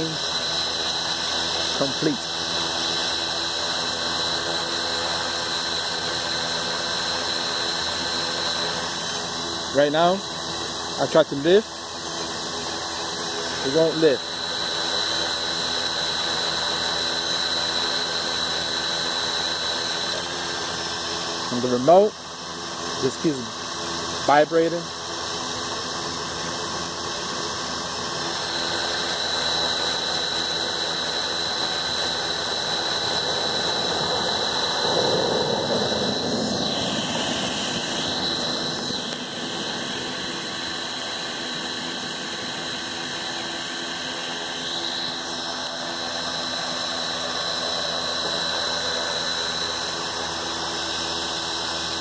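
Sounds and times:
drone motors whining: 0.0s - 52.0s.

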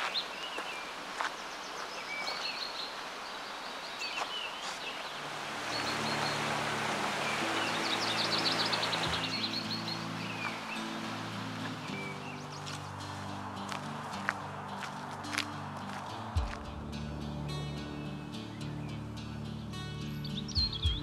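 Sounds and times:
songbirds trilling: 0.0s - 13.5s, 17.7s - 21.0s
shallow stream rushing: 0.0s - 18.6s
soft music with low notes: 5.2s - 21.0s.

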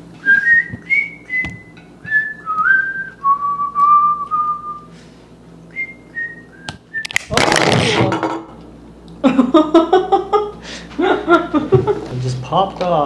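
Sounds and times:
person whistling a tune: 0.2s - 4.9s, 5.7s - 7.2s.

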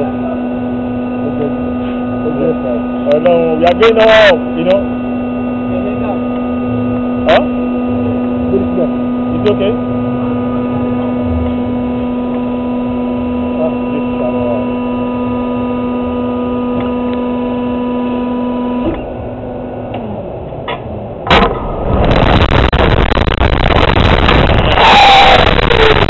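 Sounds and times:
machine hum: 0.0s - 26.0s
sharp clunk of release: 20.6s - 21.7s.

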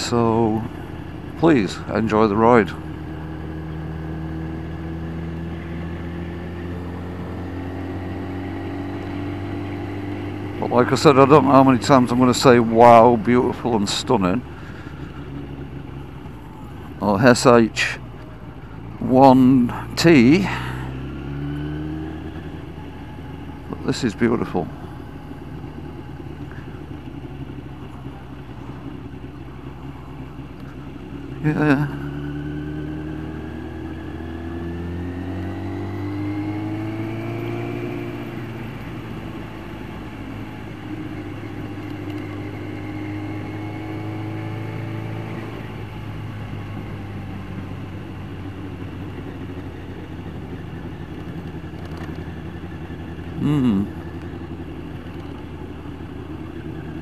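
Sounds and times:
motorcycle engine cruising: 0.0s - 57.0s.

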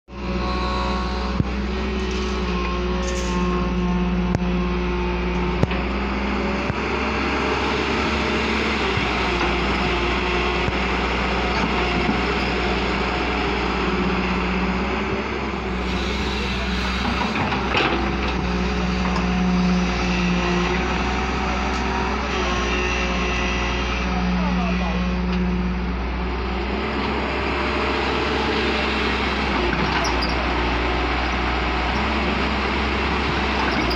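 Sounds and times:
excavator diesel engine running: 0.1s - 33.9s.

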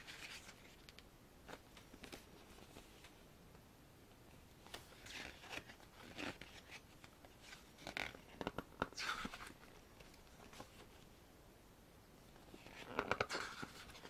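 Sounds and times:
paper pages rustling: 0.0s - 3.2s, 12.5s - 14.0s.

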